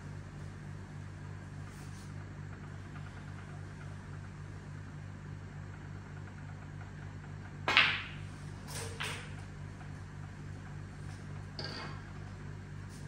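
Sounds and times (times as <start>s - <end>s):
snooker balls clicking: 7.6s - 8.3s.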